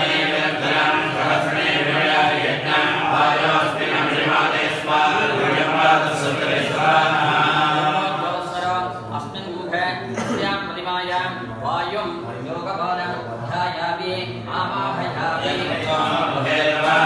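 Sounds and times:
men chanting together: 0.0s - 9.4s, 13.4s - 17.0s.

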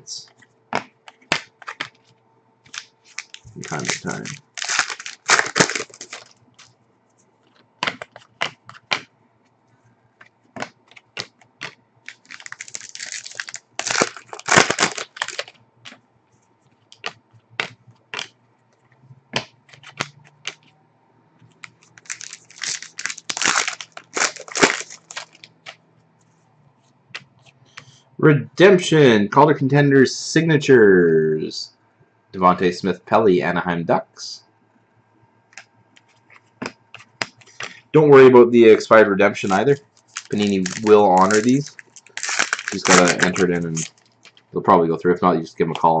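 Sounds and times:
cards clicking and snapping: 0.7s - 6.7s, 7.4s - 9.1s, 10.2s - 16.0s, 16.9s - 20.7s, 21.4s - 25.8s, 35.5s - 37.8s, 39.4s - 44.4s
foil wrapper crinkling and tearing: 2.7s - 6.7s, 10.6s - 16.0s, 21.6s - 25.8s, 38.7s - 44.5s.

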